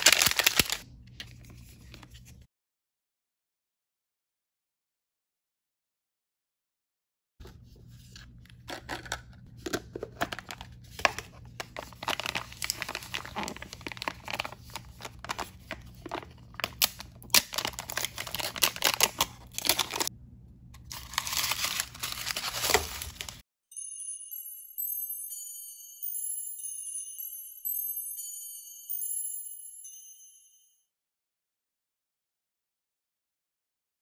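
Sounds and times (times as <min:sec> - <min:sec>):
plastic wrapping crinkling and tearing: 0:00.0 - 0:02.2, 0:10.2 - 0:20.1, 0:20.8 - 0:23.4.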